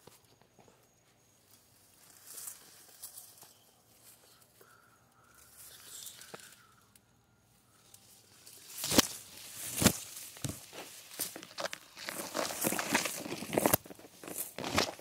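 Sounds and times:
footsteps on mulch and dry leaves: 0:01.5 - 0:04.8, 0:08.1 - 0:15.0.

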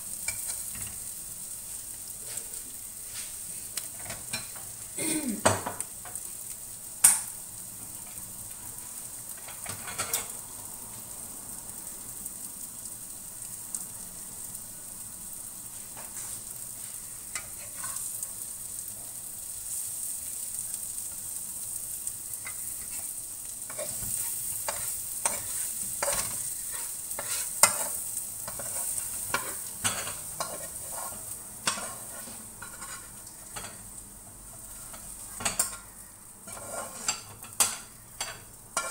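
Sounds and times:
food sizzling in a wok: 0:00.0 - 0:38.9
spatula scraping a pan: 0:00.2 - 0:01.1, 0:16.0 - 0:18.2, 0:22.4 - 0:33.8, 0:34.6 - 0:38.9.

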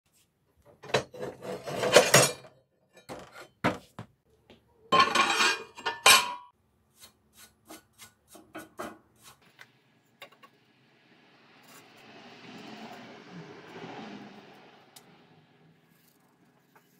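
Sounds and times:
steel scrap clattering and scraping: 0:00.8 - 0:03.6, 0:05.0 - 0:06.5.

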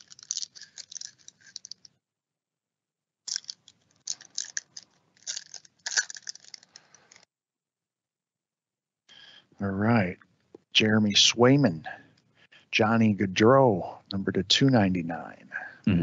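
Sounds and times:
foil wrapper crinkling and tearing: 0:00.0 - 0:01.8, 0:03.3 - 0:07.2.

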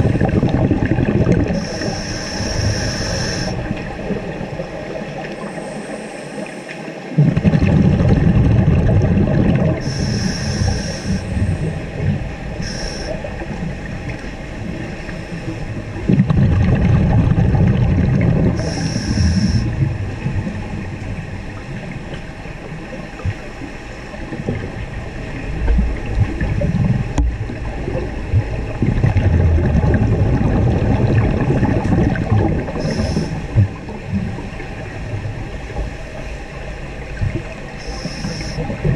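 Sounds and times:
underwater exhaled air bubbling: 0:00.0 - 0:38.9
regulator inhale hiss: 0:01.5 - 0:03.6, 0:09.8 - 0:11.6, 0:12.6 - 0:13.3, 0:18.6 - 0:19.7, 0:32.8 - 0:33.5, 0:37.8 - 0:38.7.

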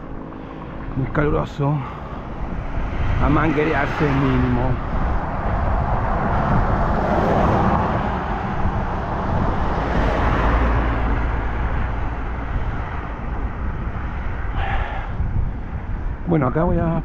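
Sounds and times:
low rumble: 0:00.0 - 0:17.0
road traffic: 0:00.0 - 0:17.0
wind rushing: 0:00.0 - 0:17.0.

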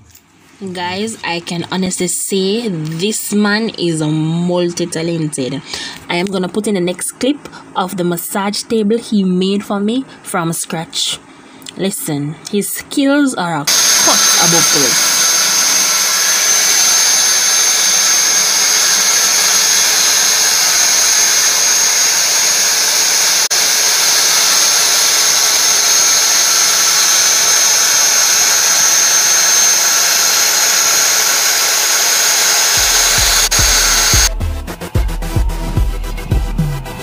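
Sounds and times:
power tool whining: 0:13.7 - 0:34.3
tool cutting wood: 0:13.7 - 0:34.3.

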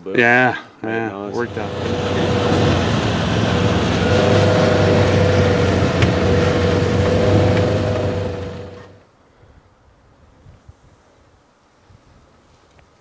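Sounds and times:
utility vehicle engine drone: 0:01.3 - 0:09.0.

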